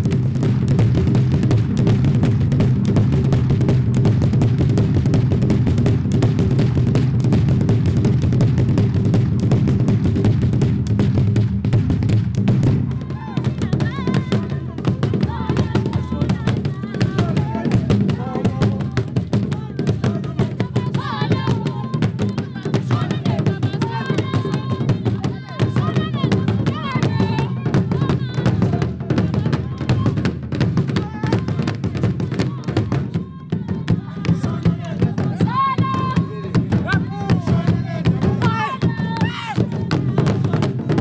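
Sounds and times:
drums beaten in fast rhythm: 0.0s - 41.0s
performers high calls: 30.9s - 40.6s.

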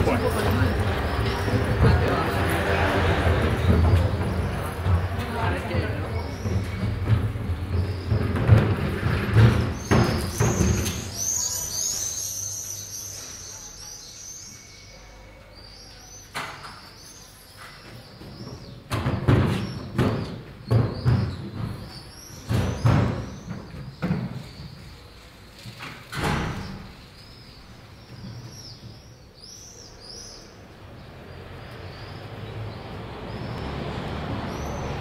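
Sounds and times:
small birds chirping: 0.0s - 8.7s, 9.4s - 25.8s, 26.4s - 35.0s
loud knocks and bangs: 3.1s - 11.2s, 18.6s - 24.6s.

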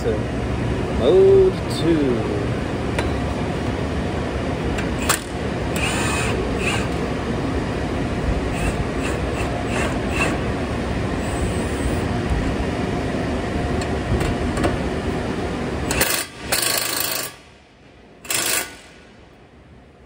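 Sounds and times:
impact wrench running: 4.9s - 7.0s, 8.5s - 10.5s, 15.8s - 17.4s, 18.2s - 19.0s.

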